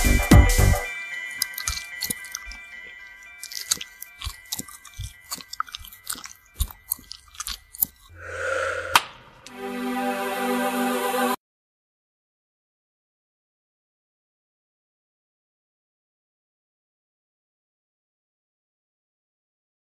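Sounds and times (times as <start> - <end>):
synth tune bass notes: 0.0 - 0.9
wet chewing smacks: 1.4 - 8.1.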